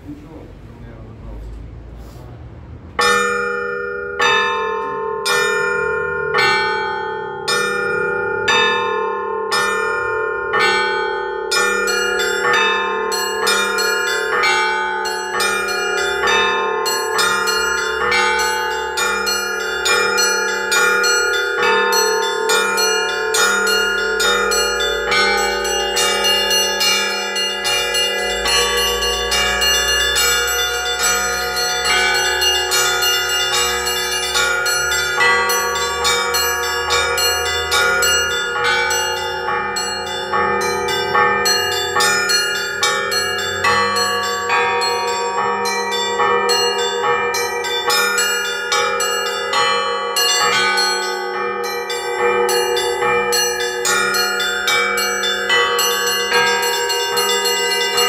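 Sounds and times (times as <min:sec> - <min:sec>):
hum of large bells: 0:00.0 - 0:58.0
deep big bell tone: 0:02.7 - 0:58.0
small church bells ringing: 0:02.8 - 0:58.0.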